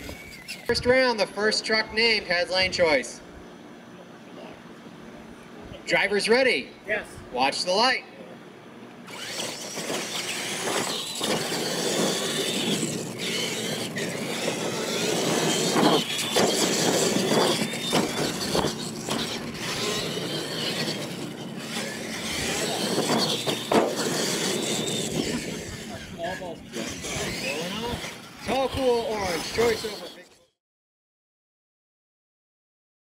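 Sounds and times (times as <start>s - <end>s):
electric toy truck motors whining: 0.0s - 1.8s, 9.0s - 30.6s
tyres rushing on dirt: 9.1s - 30.2s.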